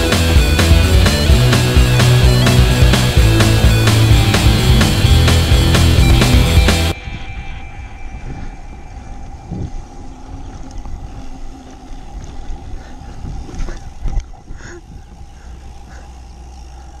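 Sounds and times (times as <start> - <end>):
wind rumbling on microphone: 6.9 - 16.5.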